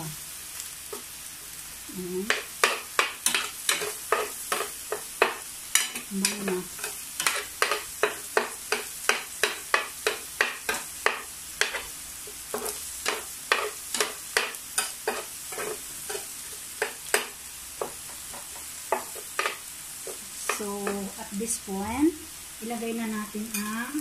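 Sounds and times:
garlic sizzling in fat: 0.0 - 24.0
metal spoon scraping a pan: 2.3 - 11.9, 12.5 - 21.0.

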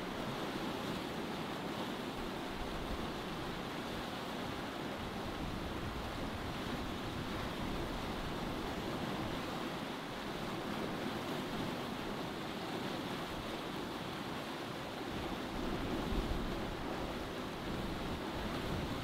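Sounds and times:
sea water rushing: 0.0 - 19.0
wind: 0.0 - 19.0.

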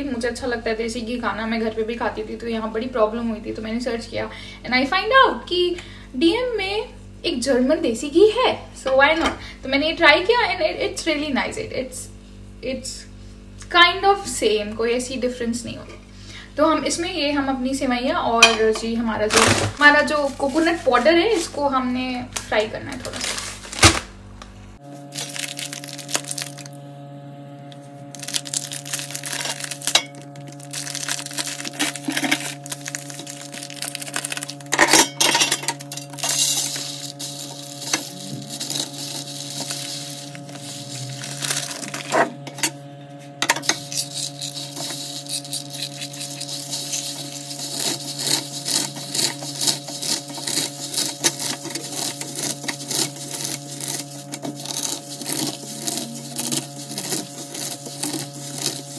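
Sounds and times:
utensil scraping a pan: 31.5 - 42.7, 43.5 - 58.9.

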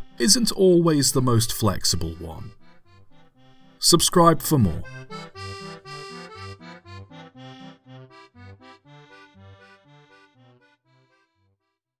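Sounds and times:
music with short pitched notes: 0.0 - 7.8.

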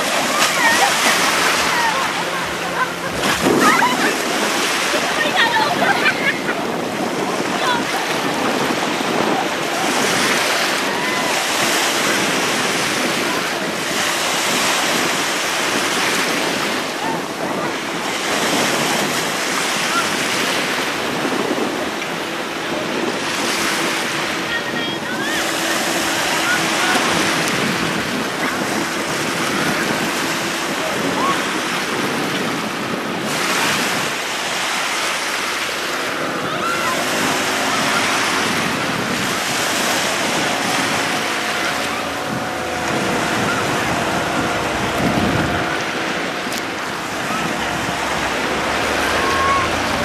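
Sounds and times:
faint motorboat engine hum: 0.0 - 50.0
sea water rushing and splashing: 0.0 - 50.0
small waves washing ashore: 0.0 - 50.0
wind buffeting microphone: 0.0 - 50.0.

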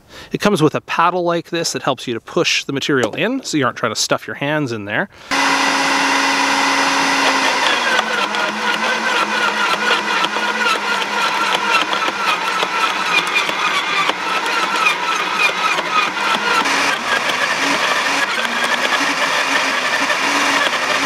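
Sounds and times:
wood chipper motor: 5.2 - 21.0.

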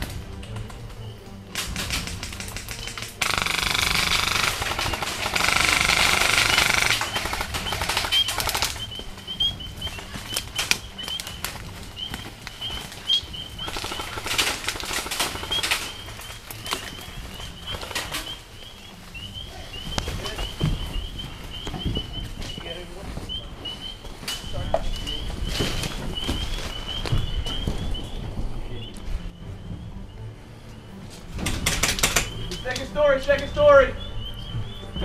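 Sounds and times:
airsoft guns firing bursts: 1.6 - 9.0, 13.6 - 16.9.

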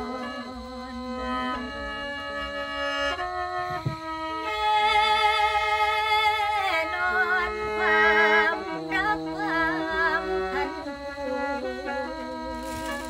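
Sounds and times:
mouth organ chords and drones: 3.6 - 4.0
woman singing: 3.7 - 13.0.

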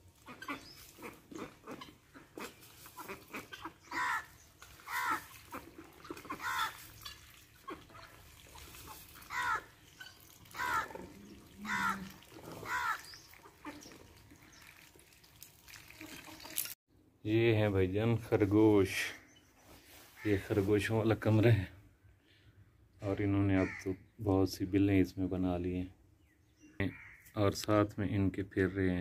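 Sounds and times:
farmyard animals calling: 0.0 - 14.8.

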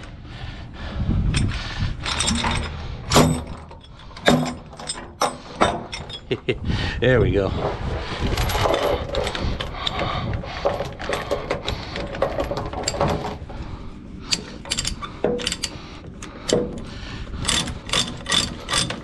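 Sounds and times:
metallic clicks of chain binder: 1.3 - 6.4, 8.2 - 13.6, 14.3 - 19.0
steel chain clanking and rattling: 1.3 - 6.5, 7.6 - 19.0.

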